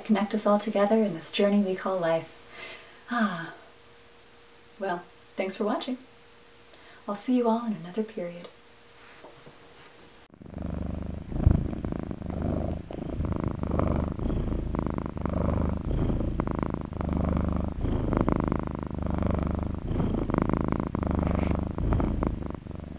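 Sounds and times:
cat purring: 10.3 - 22.9.

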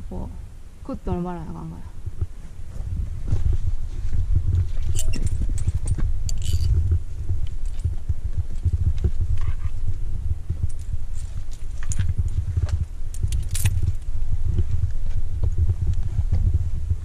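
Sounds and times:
low rumbling on microphone: 0.0 - 17.0
clicks and clinks on rock: 4.6 - 6.8, 10.6 - 14.7.

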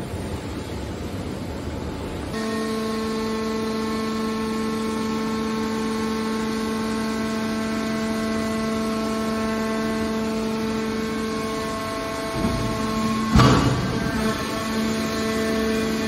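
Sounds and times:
hydraulic pump whining hum: 1.7 - 16.0.

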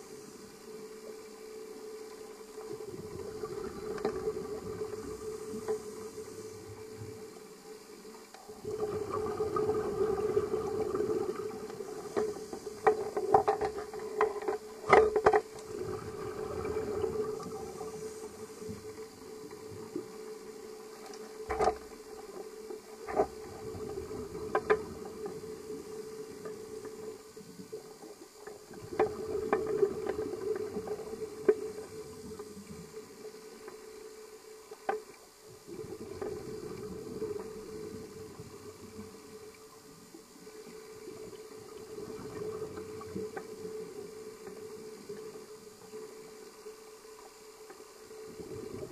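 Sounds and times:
steady hum: 0.0 - 48.9
underwater air bubbling: 2.6 - 7.3, 8.5 - 21.4, 22.0 - 27.8, 28.6 - 33.4, 35.6 - 39.6, 40.4 - 45.5, 48.1 - 48.9.

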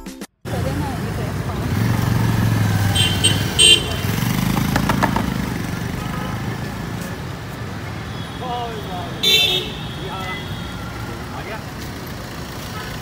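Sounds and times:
traffic motor rumble: 0.4 - 13.0
short horn toots: 2.9 - 4.3.

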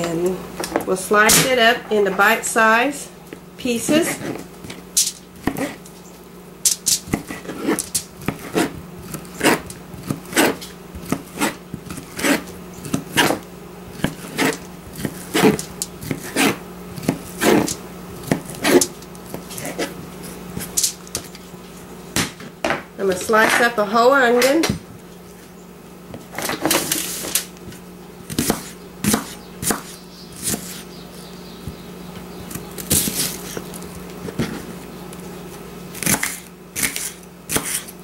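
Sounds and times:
knife chopping on plastic board: 7.1 - 13.4, 14.0 - 19.9, 27.7 - 30.8, 36.0 - 37.9.

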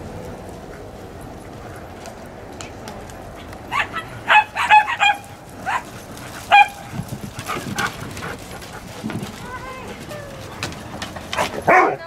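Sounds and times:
small dogs yapping: 3.4 - 12.0.

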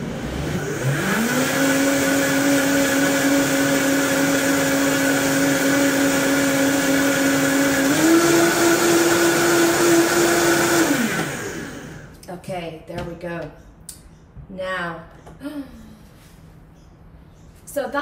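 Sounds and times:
blender motor blending: 0.0 - 12.2.

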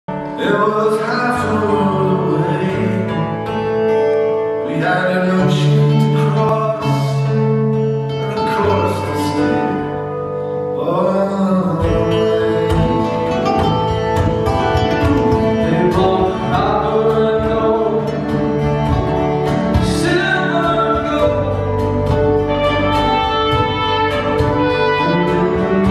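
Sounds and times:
person singing: 0.1 - 3.9, 4.6 - 25.9
strummed acoustic guitars: 0.1 - 25.9
bowed fiddle: 13.1 - 25.9.

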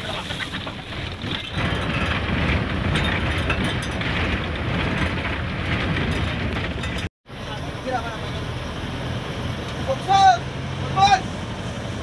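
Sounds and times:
vehicle body rattles: 0.0 - 7.1
vehicle engine and road rumble: 0.0 - 12.0.

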